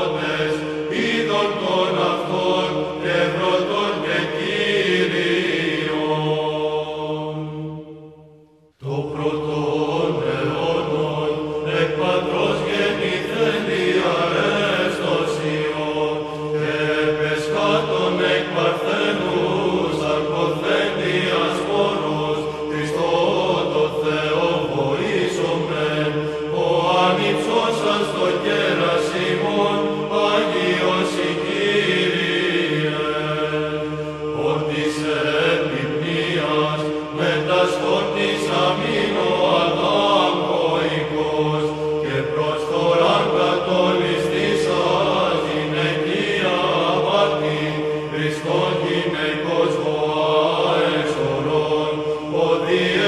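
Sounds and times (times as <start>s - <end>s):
choir chanting over drone: 0.0s - 53.0s.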